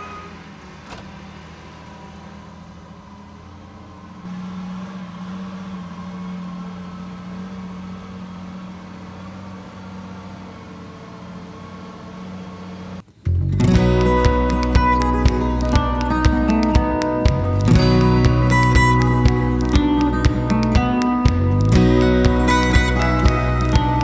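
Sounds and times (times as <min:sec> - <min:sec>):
diesel engine running: 0:00.0 - 0:24.0.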